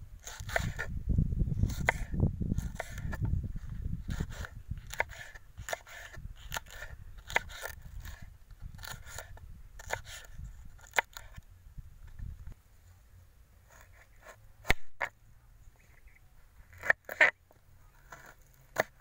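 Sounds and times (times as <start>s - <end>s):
knife slicing on wooden board: 0.2s - 0.9s, 1.6s - 3.3s, 4.0s - 11.4s.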